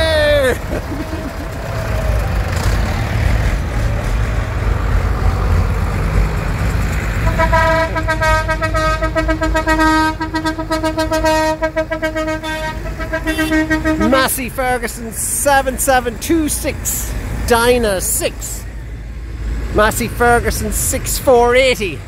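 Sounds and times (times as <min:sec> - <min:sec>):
tractor engines rumbling: 0:00.0 - 0:22.0
vehicle horn long note: 0:07.2 - 0:14.2.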